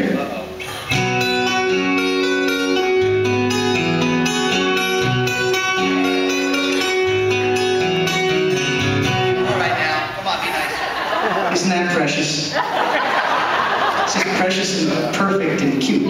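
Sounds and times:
electric guitars playing chords: 0.0 - 14.6.

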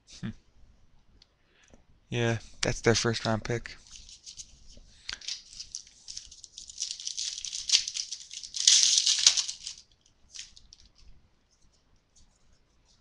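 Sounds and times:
trading cards rustling: 3.8 - 11.1.

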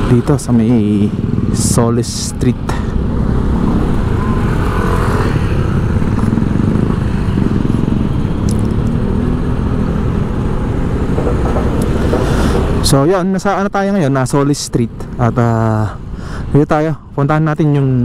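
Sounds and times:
motorcycle engine running: 0.0 - 12.9.

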